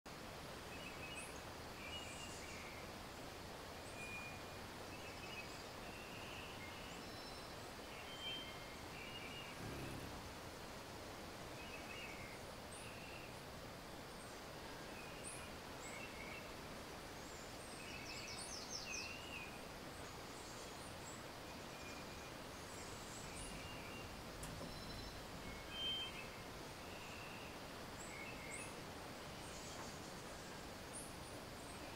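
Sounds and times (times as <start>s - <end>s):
steady hiss: 0.1s - 31.9s
birds chirping and whistling: 21.5s - 28.8s
bird trill: 23.2s - 27.6s.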